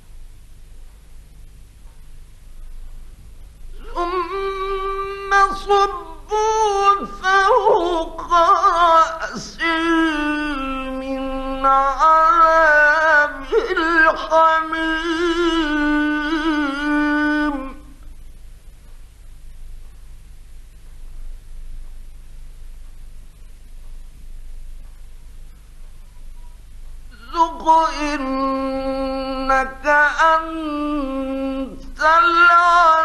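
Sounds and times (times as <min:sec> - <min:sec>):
man chanting: 0:03.8 - 0:18.0, 0:27.1 - 0:33.0.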